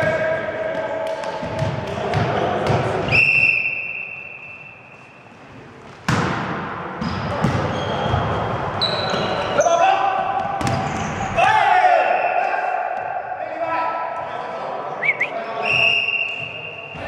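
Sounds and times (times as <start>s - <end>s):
referee's whistle: 3.1s - 5.0s, 8.8s - 9.8s, 12.0s - 12.7s, 15.0s - 17.0s.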